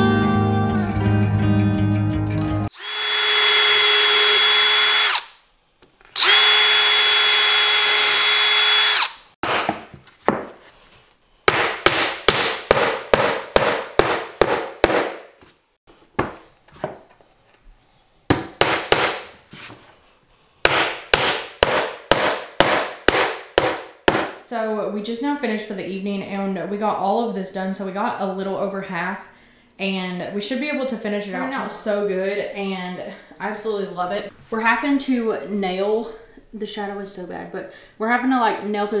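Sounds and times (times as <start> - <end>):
cordless drill boring holes: 2.7 - 5.4, 6.1 - 9.4
hammer driving nails: 6.2 - 9.9, 11.5 - 15.3, 18.3 - 19.4, 20.7 - 24.4.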